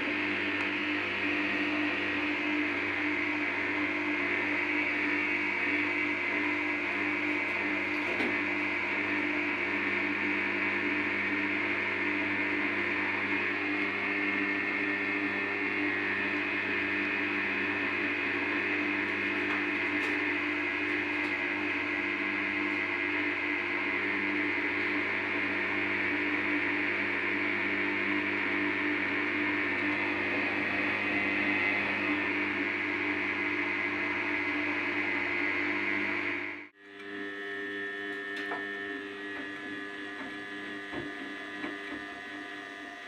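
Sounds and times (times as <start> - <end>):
washing machine running: 0.0 - 36.8, 37.6 - 43.0.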